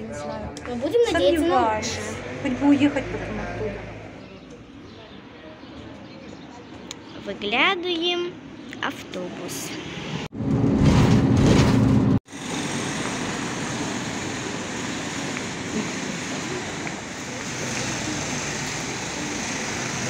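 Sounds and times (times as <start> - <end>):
street traffic: 0.0 - 20.0
bus engine humming: 11.8 - 20.0.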